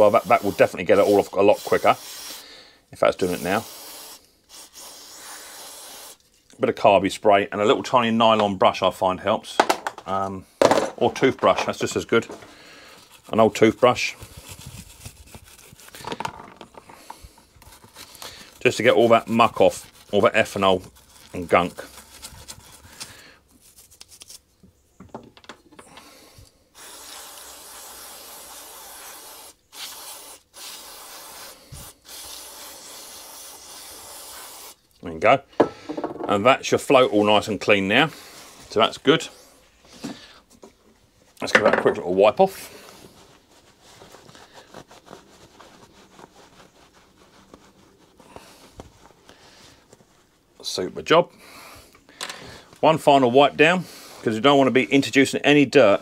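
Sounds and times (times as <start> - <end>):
brush scratching metal part: 0.0 - 2.4, 3.0 - 6.4, 12.9 - 16.0, 17.6 - 23.0, 26.8 - 35.0
aerosol can spraying: 0.0 - 2.5, 3.2 - 6.2, 26.8 - 34.8.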